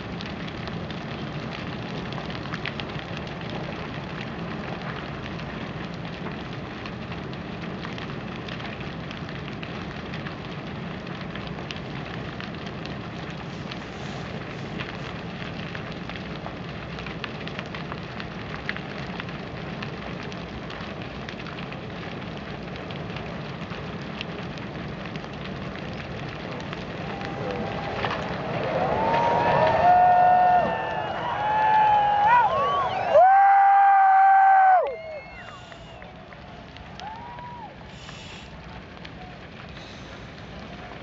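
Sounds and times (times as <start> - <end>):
burning timber crackling and popping: 0.0 - 41.0
flames rushing: 0.0 - 41.0.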